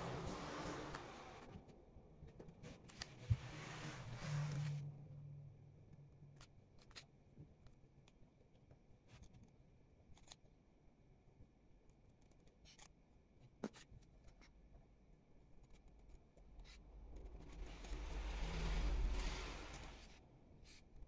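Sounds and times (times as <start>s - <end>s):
small scissors snipping paper: 10.1s - 10.5s.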